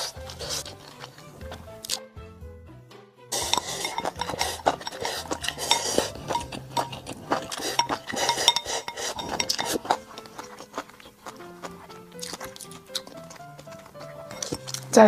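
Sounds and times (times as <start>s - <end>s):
chopsticks clinking against bowls: 3.4s - 11.4s, 12.2s - 14.9s.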